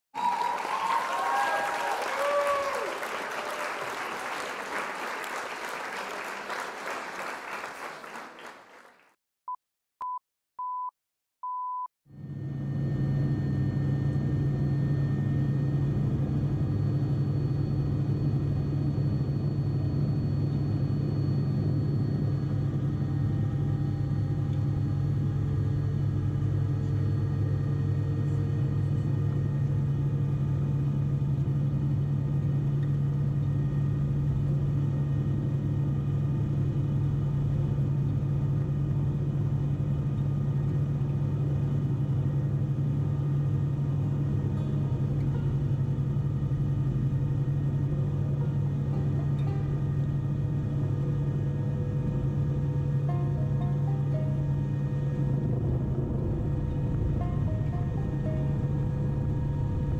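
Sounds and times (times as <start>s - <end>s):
short beeps: 10.0s - 11.9s
helicopter engine and rotor drone: 12.1s - 59.9s.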